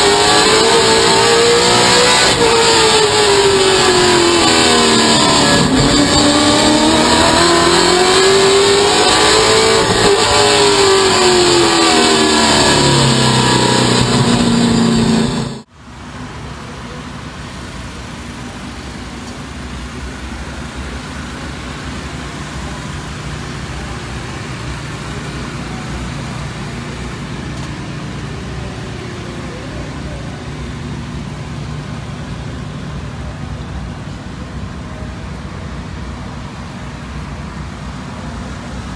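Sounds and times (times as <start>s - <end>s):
low engine drone with hiss: 15.7s - 38.9s.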